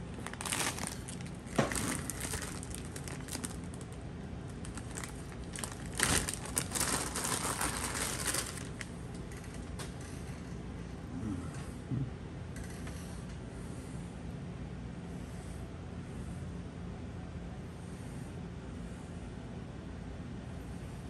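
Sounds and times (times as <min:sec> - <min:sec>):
packaging crinkling: 0:00.1 - 0:08.9.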